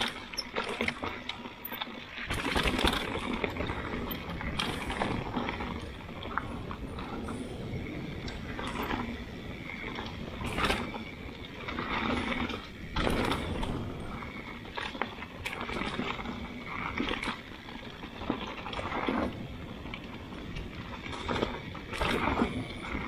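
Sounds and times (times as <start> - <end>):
bike clattering over rocks: 0.0 - 7.2
bike tyres rolling over dirt: 0.0 - 23.0
wind on microphone: 2.3 - 17.3.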